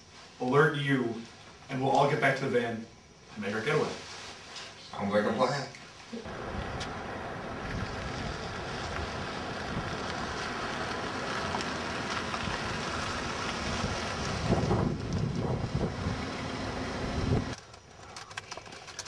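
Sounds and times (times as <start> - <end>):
wind buffeting microphone: 6.3 - 17.6.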